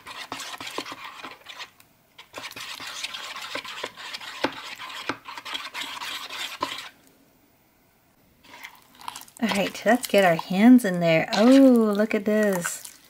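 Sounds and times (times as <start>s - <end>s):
stirring slime in plastic bowl: 0.0s - 7.0s, 8.4s - 13.0s.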